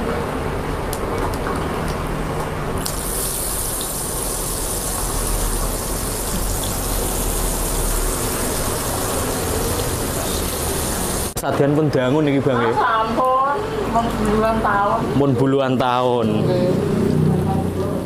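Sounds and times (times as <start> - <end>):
food deep-frying in hot oil: 2.8 - 11.4.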